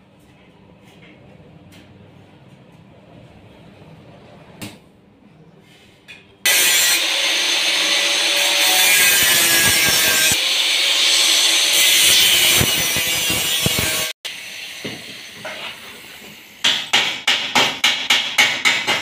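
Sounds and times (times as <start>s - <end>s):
angle grinder grinding steel: 6.5s - 16.4s.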